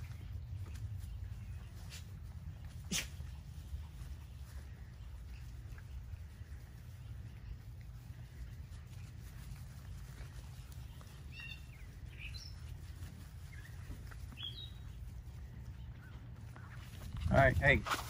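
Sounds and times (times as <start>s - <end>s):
high bird chirps: 10.9s - 16.8s.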